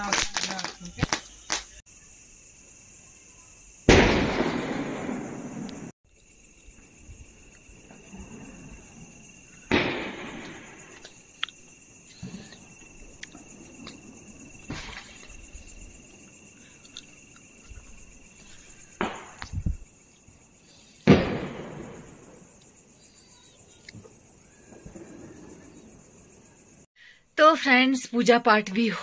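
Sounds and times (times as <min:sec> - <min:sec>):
firecrackers bursting: 0:00.0 - 0:01.8, 0:03.8 - 0:06.0, 0:07.7 - 0:11.3, 0:12.1 - 0:16.2, 0:18.7 - 0:19.9, 0:21.0 - 0:22.6
insect chirring: 0:00.0 - 0:29.0.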